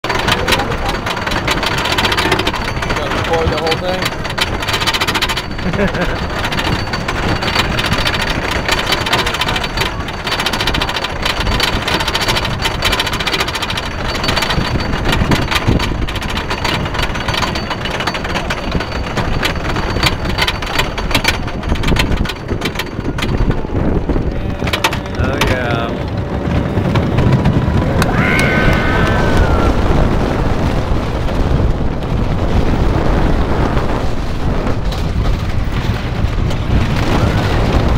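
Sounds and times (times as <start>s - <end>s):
roller coaster chain lift clattering: 0.0s - 37.9s
riders yelling and screaming: 24.1s - 30.2s.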